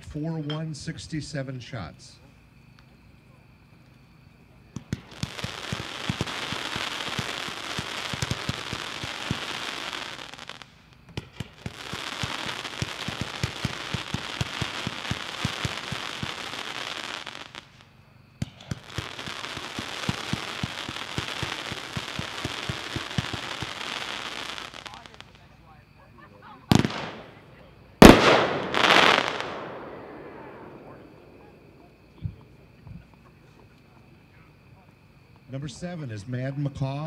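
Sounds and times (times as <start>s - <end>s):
firework launch pops: 4.7s - 9.5s, 10.4s - 16.4s, 18.4s - 23.8s, 26.7s - 27.4s, 28.0s - 31.2s
firework hiss: 4.7s - 25.8s, 26.7s - 31.8s.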